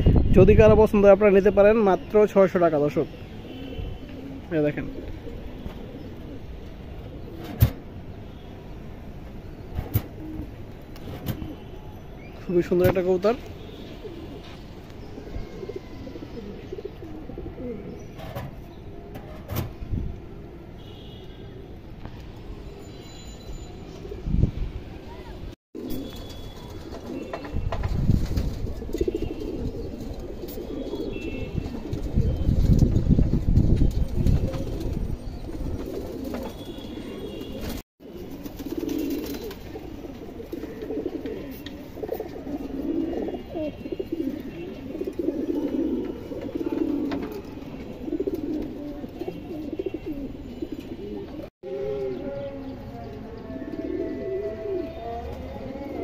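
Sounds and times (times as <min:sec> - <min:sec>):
pigeons cooing: 0:03.1 - 0:08.0, 0:09.5 - 0:11.9, 0:13.7 - 0:20.7, 0:25.8 - 0:33.2, 0:34.0 - 0:56.0.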